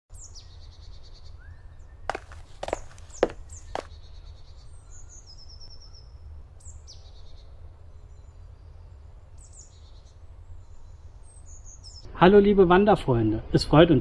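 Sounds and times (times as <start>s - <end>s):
songbirds chirping: 0.1s - 12.1s
short thuds: 2.1s - 3.9s.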